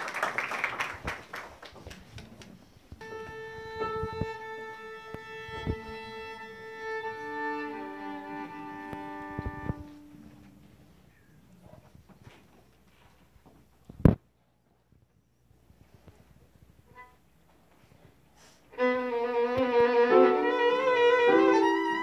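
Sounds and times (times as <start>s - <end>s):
applause: 0.0s - 2.6s
violin being tuned: 3.0s - 10.7s, 18.7s - 22.0s.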